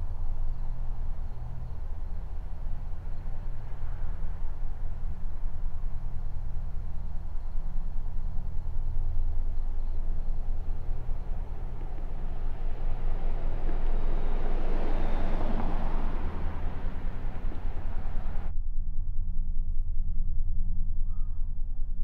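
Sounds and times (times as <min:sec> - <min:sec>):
steady low rumble: 0:00.0 - 0:22.0
car passing by: 0:10.0 - 0:18.5.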